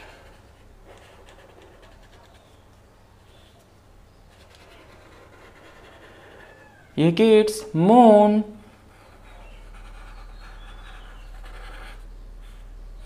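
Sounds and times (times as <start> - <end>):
marker scratching on paper: 0.0 - 2.7, 4.3 - 6.6, 8.6 - 12.7.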